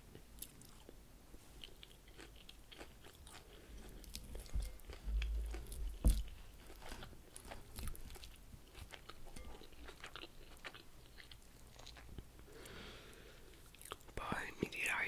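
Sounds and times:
chewing crunchy salad leaves: 0.1 - 14.2.

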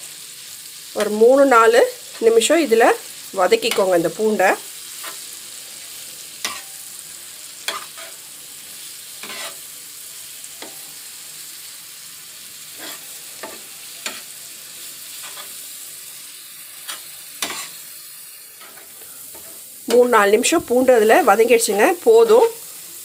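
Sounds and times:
garlic sizzling in butter: 0.0 - 23.0
spatula scraping pan: 3.6 - 5.4, 6.4 - 9.7, 12.7 - 22.5.

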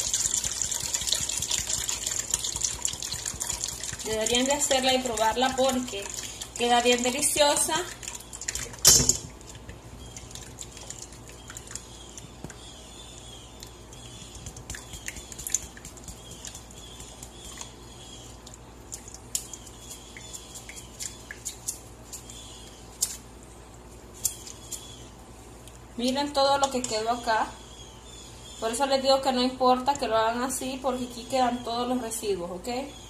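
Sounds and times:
faint steady hum: 0.0 - 33.0.

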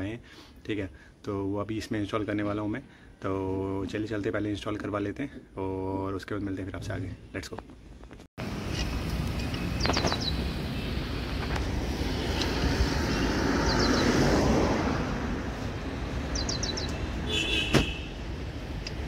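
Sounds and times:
roadside traffic: 6.8 - 19.0
vehicle passing: 8.4 - 19.0
sharp knock: 17.6 - 18.0.

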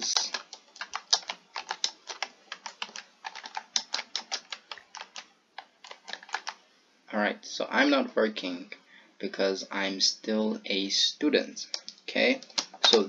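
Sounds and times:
typing on computer keyboard: 0.0 - 6.6, 11.7 - 13.0.

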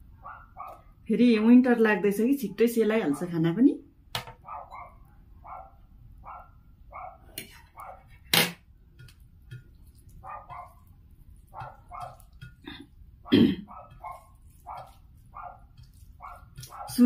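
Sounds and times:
dog barking: 0.2 - 0.9, 3.0 - 3.3, 4.4 - 8.1, 10.2 - 10.9, 11.5 - 12.3, 13.7 - 17.0.

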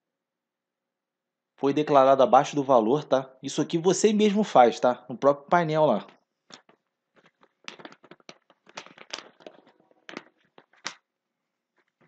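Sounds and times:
paper rustling and crinkling: 6.5 - 10.9.

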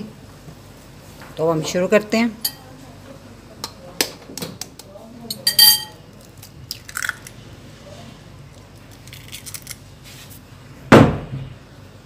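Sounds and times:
eggshell clicks and crackles: 6.1 - 7.4, 8.5 - 9.9.

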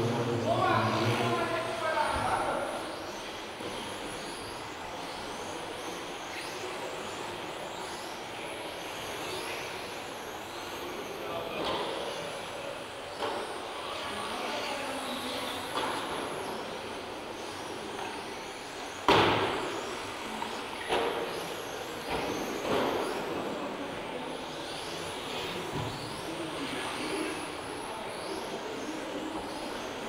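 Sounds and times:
hum of rc car motors and tyres: 0.0 - 30.0.

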